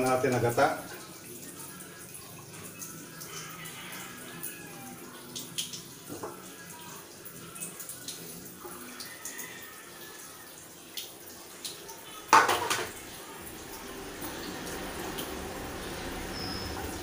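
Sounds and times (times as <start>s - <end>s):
metal tray clattering on tiles: 12.3s - 13.0s.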